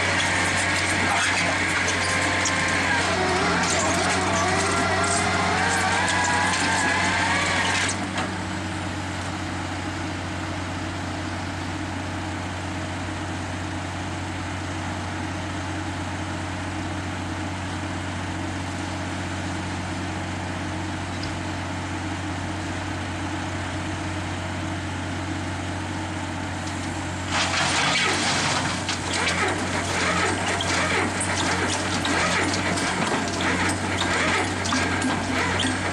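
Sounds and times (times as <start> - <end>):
diesel engine running: 0.0 - 35.9
high wavering squeal: 1.9 - 7.8
soil and gravel rushing off: 26.7 - 35.9.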